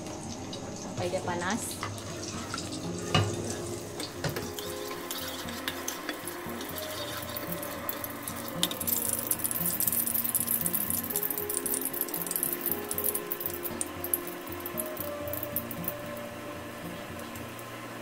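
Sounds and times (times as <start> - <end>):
quiet background music: 0.0 - 18.0
wooden spatula scraping wok: 1.7 - 11.4.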